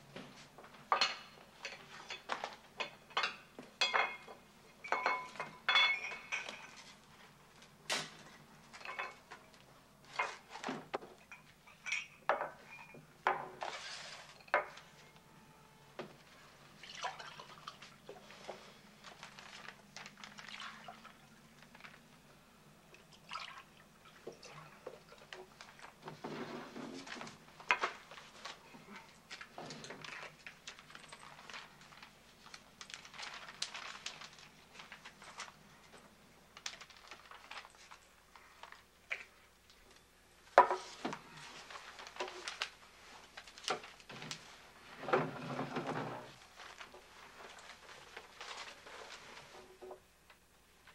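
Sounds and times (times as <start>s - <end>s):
tableware clinking: 0.9s - 7.0s, 8.8s - 9.4s, 11.2s - 13.6s, 14.2s - 15.0s
liquid pouring: 16.8s - 17.9s, 23.0s - 24.3s
newspaper pages rustling: 17.8s - 22.1s, 25.5s - 38.9s, 40.9s - 44.8s, 46.3s - 49.7s.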